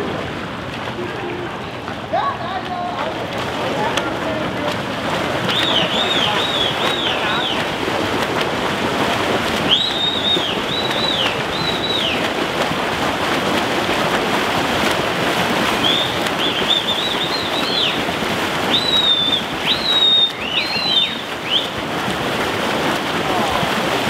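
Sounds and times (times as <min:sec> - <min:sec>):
swimmers splashing in a pool: 0:00.0 - 0:24.0
birds chirping: 0:05.5 - 0:07.7, 0:09.7 - 0:12.2, 0:15.8 - 0:18.0, 0:18.7 - 0:21.8.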